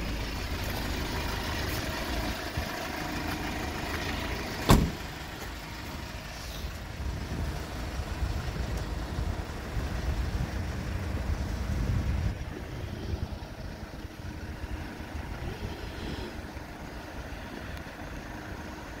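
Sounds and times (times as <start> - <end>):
diesel truck engine rumbling: 0.0 - 19.0
wind on microphone: 7.0 - 14.5.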